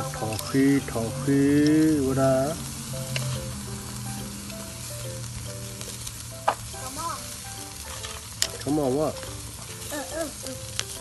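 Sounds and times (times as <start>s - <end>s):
meat sizzling on a grill: 0.0s - 11.0s.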